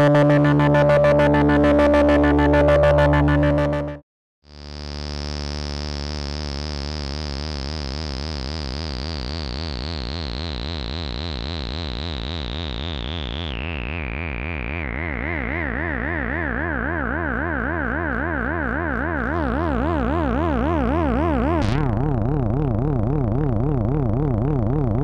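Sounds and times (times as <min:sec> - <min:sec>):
synthesizer held note with vibrato: 0:00.0 - 0:04.0, 0:11.7 - 0:25.0.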